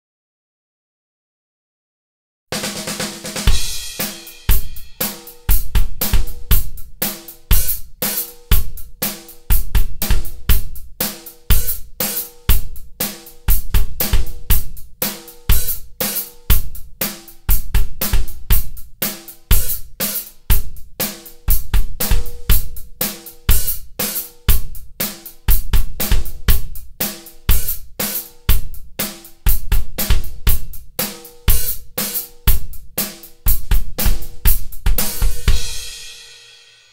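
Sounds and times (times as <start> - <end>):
snare drum hits: 2.6 - 7.3, 34.0 - 36.4
cymbals or hi-hat: 2.6 - 36.9
kick drum: 3.4 - 35.8.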